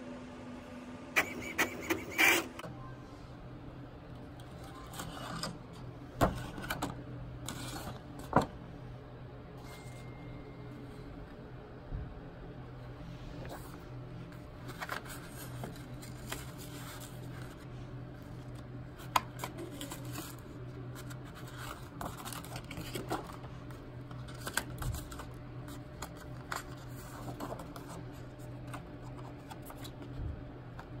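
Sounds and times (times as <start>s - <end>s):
steady low hum: 0.0s - 31.0s
paper rustling: 14.6s - 17.6s, 18.2s - 28.0s.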